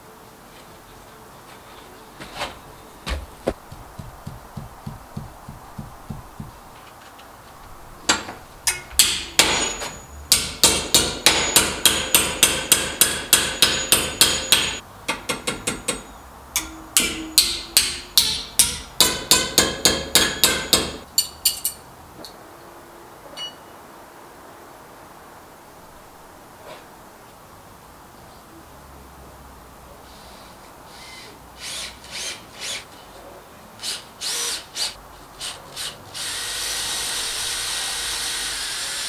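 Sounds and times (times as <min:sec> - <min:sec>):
hammer striking steel bracket: 0:03.1 - 0:06.7, 0:08.1 - 0:21.8.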